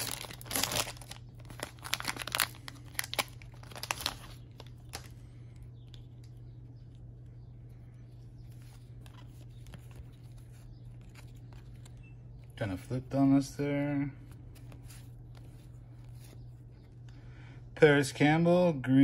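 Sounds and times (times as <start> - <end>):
plastic wrapper tearing and crinkling: 0.0 - 5.2.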